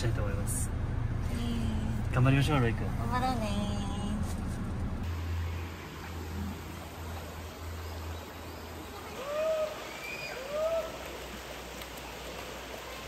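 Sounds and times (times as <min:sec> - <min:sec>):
low hum: 0:00.0 - 0:13.0
rising and falling calls: 0:08.1 - 0:11.2.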